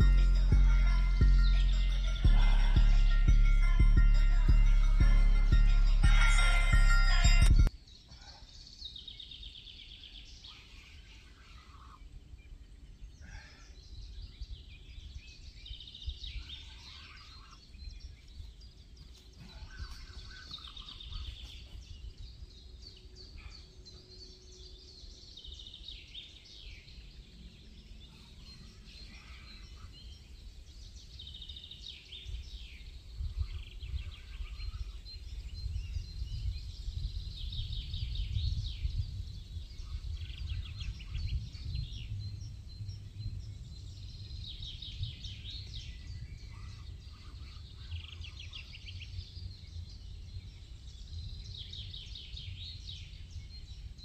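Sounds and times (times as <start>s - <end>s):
low outdoor rumble: 0.0s - 7.7s, 38.4s - 52.0s
songbirds chirping and trilling: 0.0s - 54.0s.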